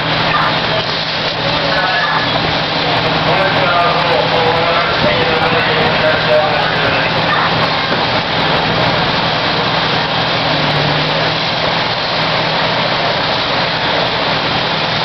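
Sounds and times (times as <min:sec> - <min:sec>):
fire engine pump humming: 0:00.0 - 0:15.0.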